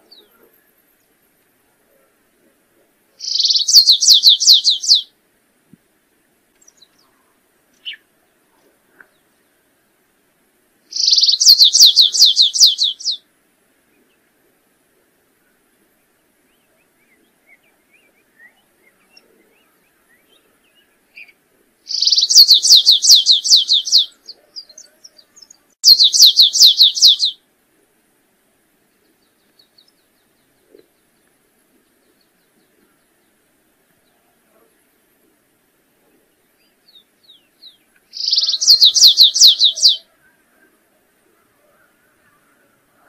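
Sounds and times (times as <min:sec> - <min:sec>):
finch singing: 0:03.2 - 0:05.1, 0:10.9 - 0:13.2, 0:16.5 - 0:27.4, 0:36.5 - 0:40.1.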